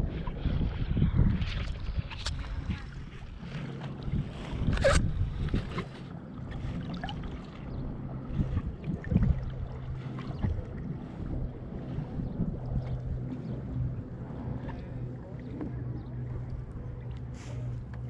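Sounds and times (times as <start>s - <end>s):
water splashing against kayak hull: 0.0s - 18.0s
wind rumbling on microphone: 0.0s - 18.0s.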